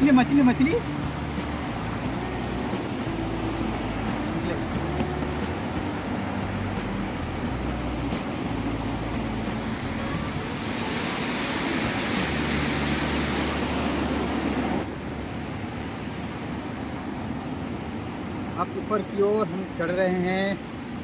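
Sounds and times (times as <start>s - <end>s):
river water rushing: 0.0s - 21.0s.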